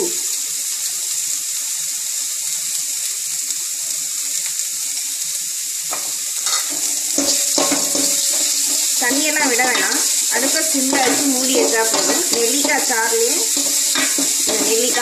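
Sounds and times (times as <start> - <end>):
food sizzling in hot oil: 0.0 - 15.0
spoon knocking and scraping pan: 5.9 - 15.0.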